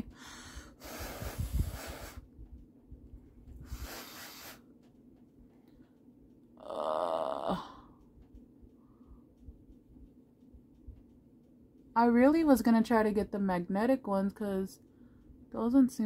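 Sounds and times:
breath blowing: 0:00.2 - 0:02.3, 0:03.6 - 0:04.6
person humming: 0:06.6 - 0:07.9.

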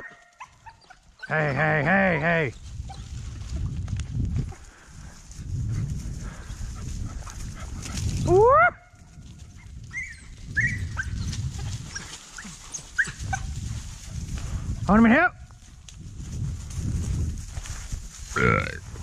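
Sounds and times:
dogs yelping: 0:00.0 - 0:02.2, 0:09.6 - 0:13.6.

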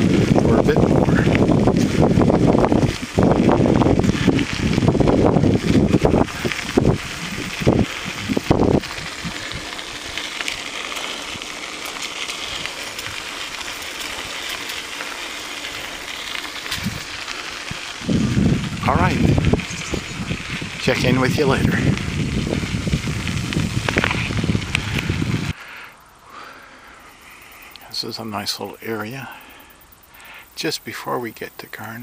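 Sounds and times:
wind buffeting microphone: 0:00.0 - 0:25.6
bicycle tyres rolling on trail: 0:00.0 - 0:32.0.

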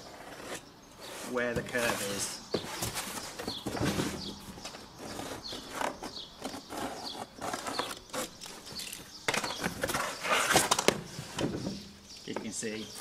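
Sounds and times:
knife scraping cardboard: 0:00.0 - 0:04.3, 0:05.0 - 0:08.4, 0:09.5 - 0:11.4.

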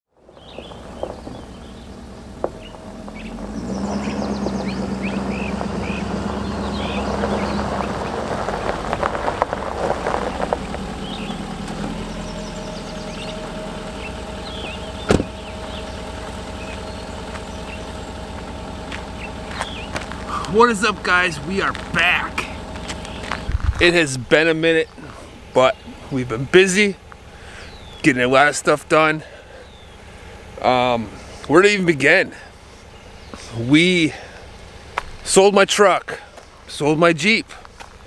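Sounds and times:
birds chirping: 0:00.2 - 0:38.0
pickup truck engine running: 0:00.2 - 0:38.0
tyres crunching over gravel: 0:00.2 - 0:38.0
truck door shutting: 0:11.1 - 0:13.4, 0:14.4 - 0:16.5.

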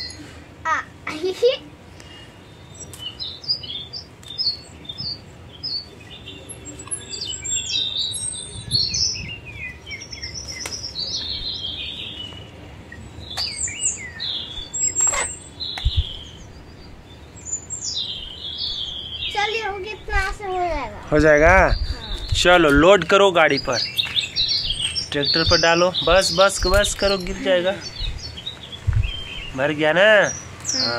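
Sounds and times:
small birds chirping: 0:00.0 - 0:30.9.

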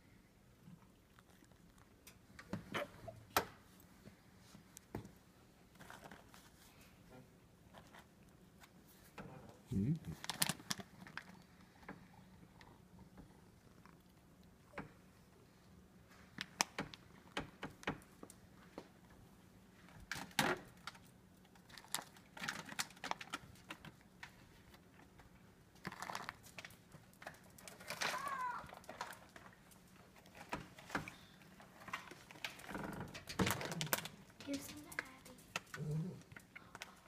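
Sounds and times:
cat crunching treats: 0:00.5 - 0:02.5, 0:09.7 - 0:17.8, 0:19.9 - 0:28.0
foil pouch crinkling: 0:10.1 - 0:11.4, 0:25.8 - 0:29.4.

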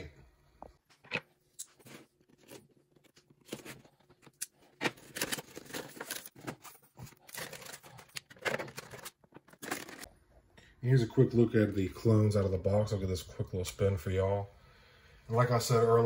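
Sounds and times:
plastic and cardboard rustling: 0:01.0 - 0:10.1.

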